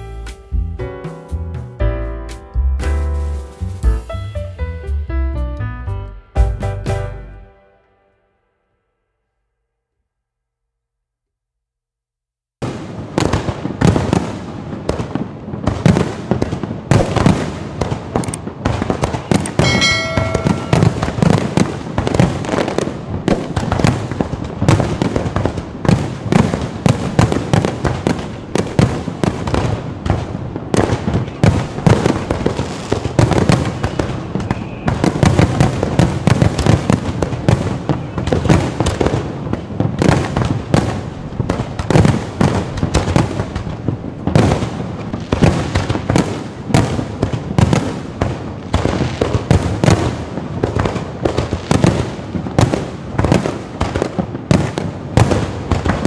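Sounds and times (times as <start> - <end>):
fireworks bangs and crackles: 12.6 - 56.0
brief ringing tone: 19.6 - 21.0.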